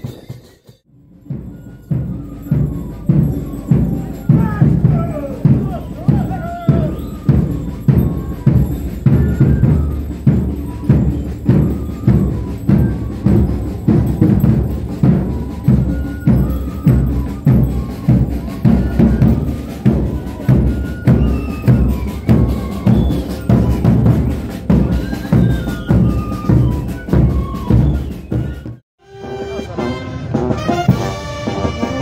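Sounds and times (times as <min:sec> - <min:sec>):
street band music: 0:00.0 - 0:32.0.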